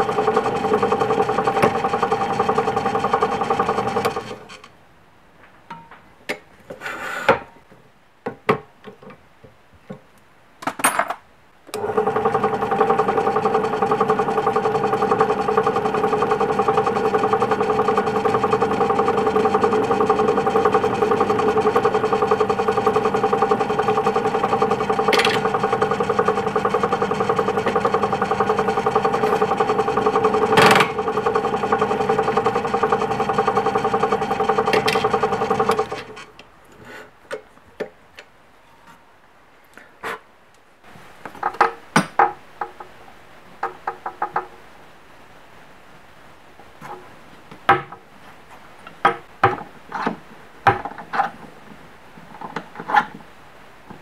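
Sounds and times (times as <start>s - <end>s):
drill press motor running: 0.0s - 4.6s, 11.8s - 36.3s.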